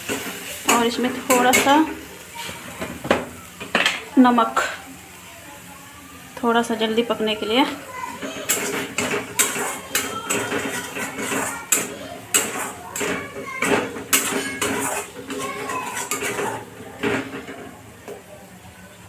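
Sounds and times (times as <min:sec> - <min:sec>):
metal spatula scraping a pan: 0:00.0 - 0:02.9, 0:07.3 - 0:17.8.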